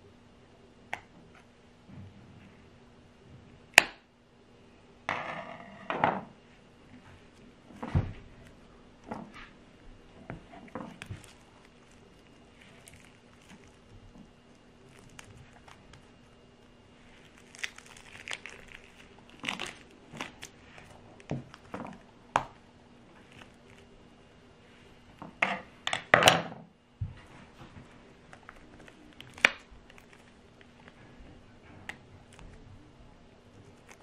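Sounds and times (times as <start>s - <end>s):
crinkling and sticky tearing: 7.2s - 24.0s, 27.4s - 32.8s, 33.5s - 34.0s.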